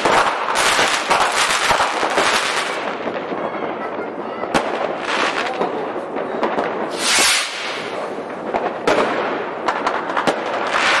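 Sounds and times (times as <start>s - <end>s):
fireworks bangs and pops: 0.0s - 11.0s
fireworks crackling: 0.0s - 11.0s
hissing firework burst: 6.7s - 11.0s.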